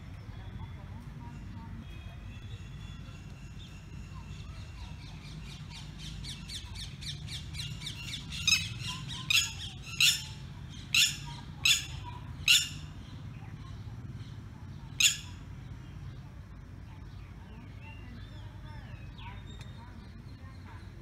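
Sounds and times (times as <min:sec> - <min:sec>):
lapwing calling: 0:00.3 - 0:15.7.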